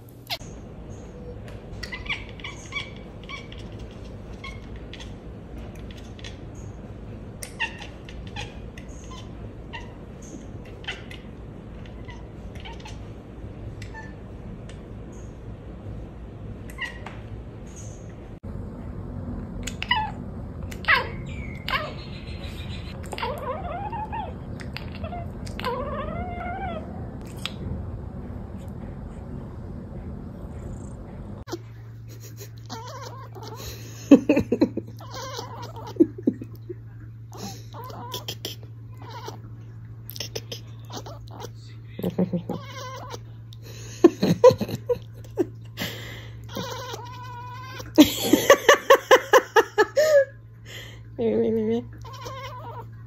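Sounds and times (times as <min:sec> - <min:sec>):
cat chirping and chattering: 0:00.3 - 0:13.2, 0:16.6 - 0:17.1, 0:19.6 - 0:27.6, 0:30.7 - 0:33.7, 0:34.4 - 0:43.6, 0:46.4 - 0:49.7, 0:51.8 - 0:53.0.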